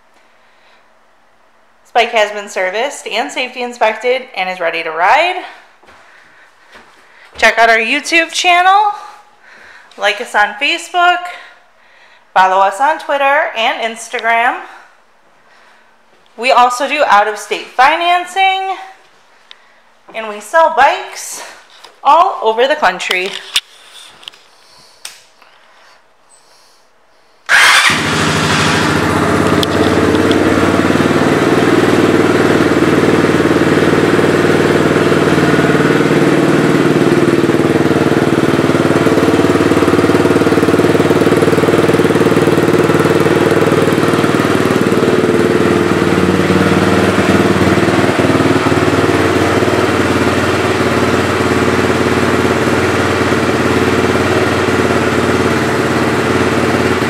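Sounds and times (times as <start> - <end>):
motorbike engine starting and idling: 27.5 - 57.0.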